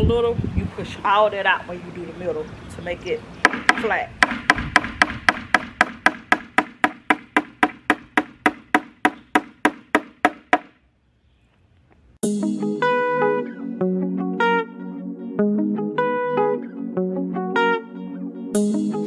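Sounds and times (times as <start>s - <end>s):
hammer striking nail into wood: 3.4s - 10.8s
guitar music: 12.2s - 19.0s.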